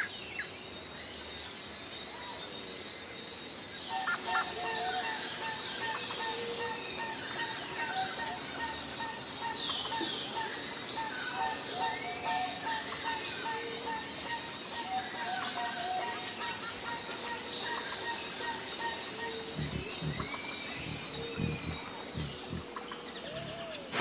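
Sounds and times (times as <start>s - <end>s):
birds chirping and calling: 3.8s - 24.0s
steady high buzz: 18.2s - 24.0s.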